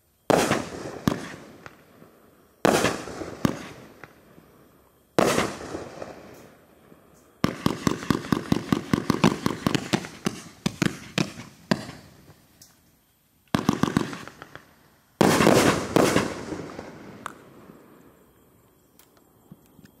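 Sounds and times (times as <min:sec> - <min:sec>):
fireworks cake firing: 0:07.4 - 0:12.8, 0:13.6 - 0:17.5.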